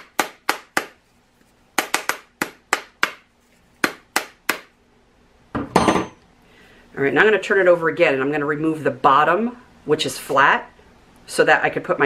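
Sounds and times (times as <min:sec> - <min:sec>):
sharp taps on plastic mold: 0:01.8 - 0:03.2.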